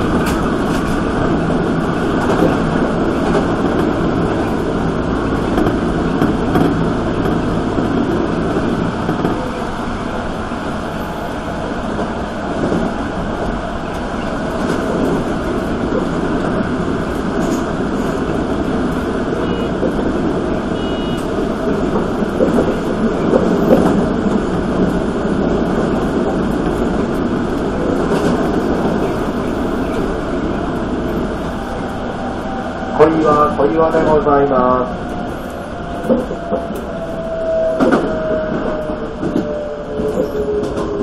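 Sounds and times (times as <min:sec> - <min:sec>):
train wheels rumbling on rail: 0:00.0 - 0:41.0
short high beeps: 0:20.8 - 0:21.3.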